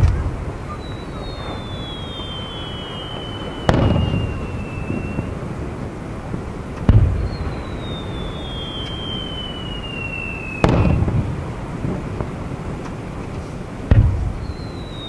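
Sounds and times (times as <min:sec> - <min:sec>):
firework shell booming: 0:00.0 - 0:05.4, 0:06.8 - 0:12.4, 0:13.9 - 0:14.6
firework whistle falling in pitch: 0:00.0 - 0:05.4, 0:07.0 - 0:11.2, 0:14.4 - 0:15.0.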